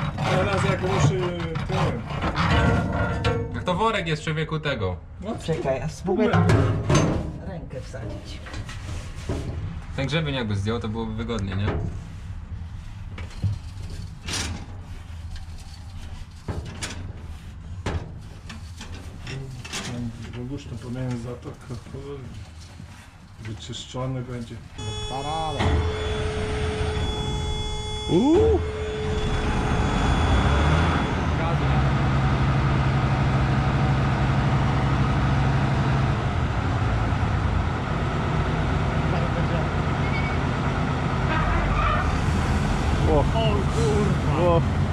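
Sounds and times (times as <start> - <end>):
steady low hum: 24.7 - 37.8.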